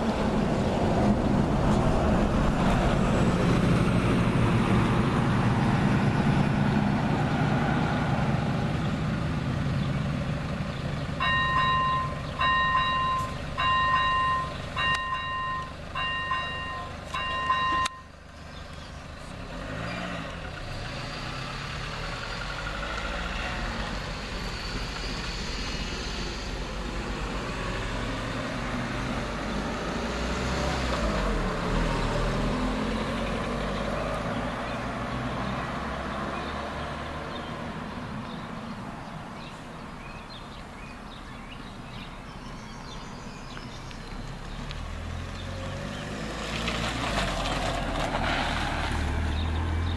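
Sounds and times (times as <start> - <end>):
cars passing over crossing: 0.0 - 49.9
level-crossing warning bell: 11.2 - 18.1.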